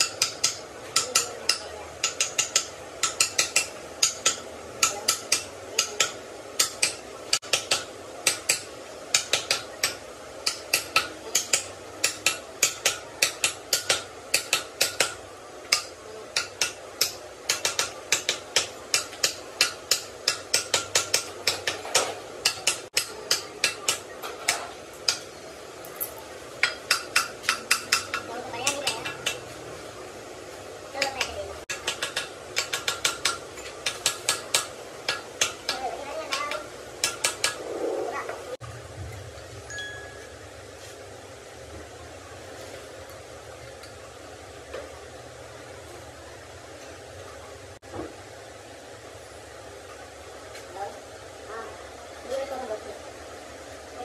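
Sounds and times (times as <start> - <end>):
hammer striking metal: 0.0 - 25.3, 26.0 - 29.5, 31.0 - 37.6.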